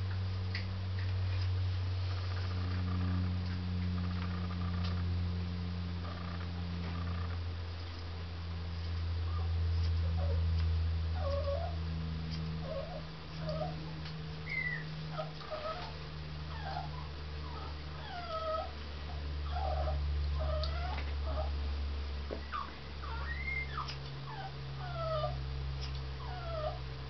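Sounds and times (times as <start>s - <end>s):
steady low hum: 0.0s - 27.0s
dog whimpering: 9.3s - 10.4s, 11.1s - 11.8s, 12.6s - 13.8s, 14.4s - 21.6s, 22.4s - 25.4s, 26.2s - 26.8s.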